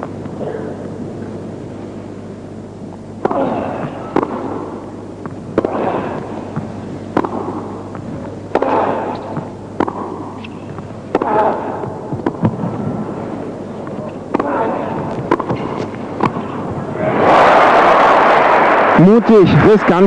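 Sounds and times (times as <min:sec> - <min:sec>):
hum of crowd and hall: 0:00.0 - 0:20.0
racket hitting tennis ball: 0:03.2 - 0:16.8.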